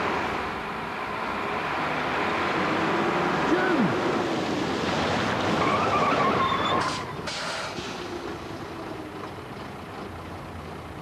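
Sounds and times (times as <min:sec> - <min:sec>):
lorry engine and road noise: 0:00.0 - 0:11.0
wavering brake squeal: 0:05.6 - 0:07.8.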